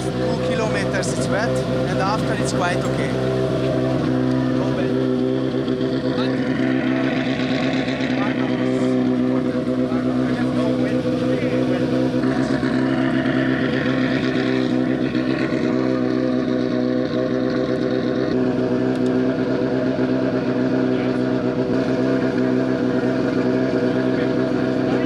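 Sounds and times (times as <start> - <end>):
car engine idling: 0.0 - 25.0.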